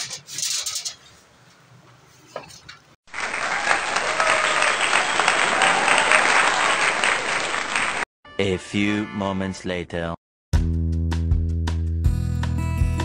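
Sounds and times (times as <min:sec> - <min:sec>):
crowd applause and cheering: 0:03.1 - 0:08.1.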